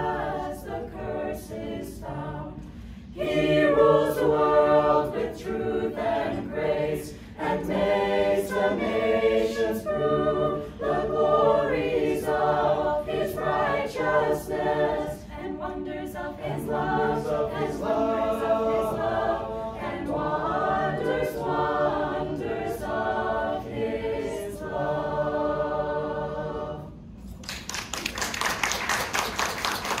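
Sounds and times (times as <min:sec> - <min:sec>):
choir singing a cappella carol: 0:00.0 - 0:27.2
people clapping: 0:27.3 - 0:30.0.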